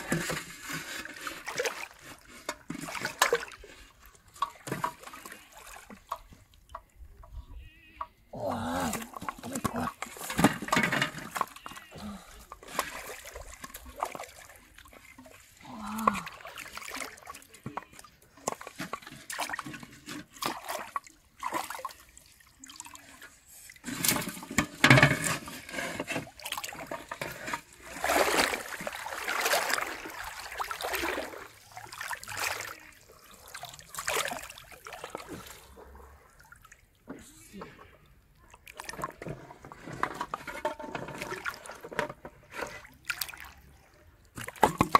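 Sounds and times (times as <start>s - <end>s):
fish thrashing in water: 8.6s - 23.1s, 25.4s - 36.8s.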